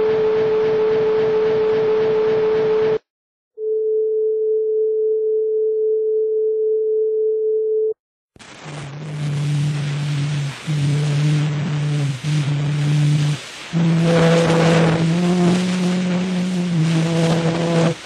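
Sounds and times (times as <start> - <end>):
hiss: 8.4 - 18.0
steady pure tone: 8.4 - 18.0
low hum-like tones: 8.9 - 18.0.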